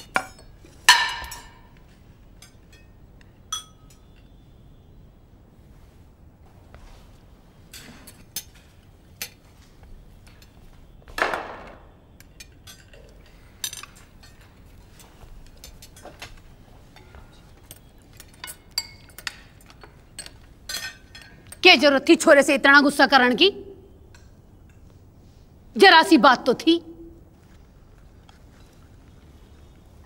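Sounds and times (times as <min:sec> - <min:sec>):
cutlery clinking on plates: 0:00.0 - 0:04.3, 0:07.7 - 0:09.5, 0:12.2 - 0:21.6.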